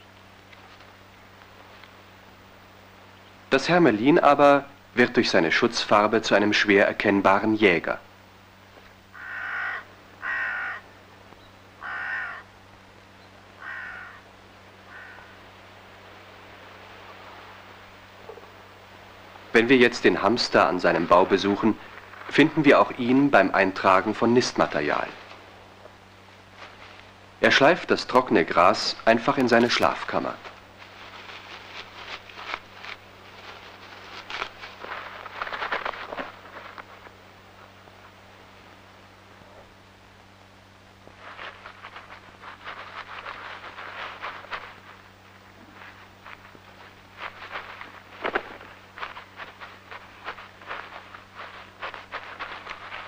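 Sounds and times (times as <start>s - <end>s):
dry grass rustling: 0.0s - 3.8s, 8.6s - 53.0s
crow cawing: 9.1s - 11.0s, 11.8s - 12.6s, 13.6s - 15.4s.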